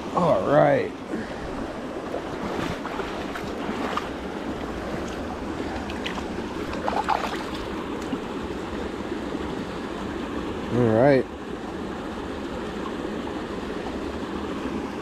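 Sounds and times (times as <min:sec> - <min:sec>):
stream water running: 0:00.0 - 0:15.0
small splashes: 0:01.5 - 0:08.2.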